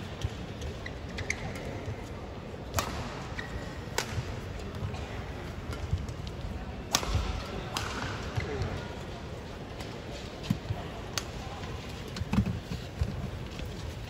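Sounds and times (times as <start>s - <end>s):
racket hitting shuttlecock: 2.7s - 4.4s, 6.9s - 8.6s.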